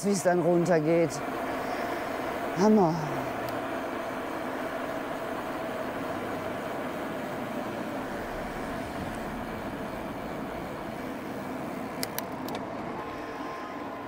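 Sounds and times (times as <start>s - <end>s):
wind rush: 6.3s - 13.5s
sharp clicks: 11.9s - 12.8s.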